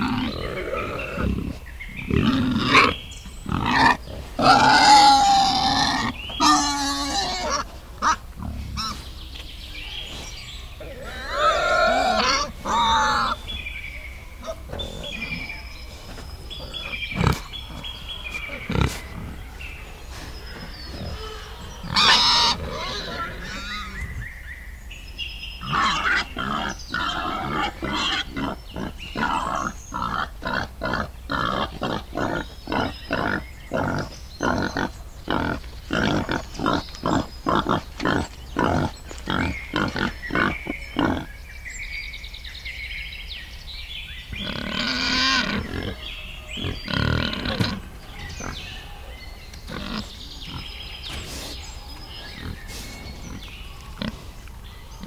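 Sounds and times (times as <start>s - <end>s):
piglets calling: 0.0s - 9.0s, 10.8s - 13.4s, 16.6s - 19.4s, 20.9s - 24.1s, 25.6s - 41.3s, 44.4s - 48.6s, 52.4s - 54.4s.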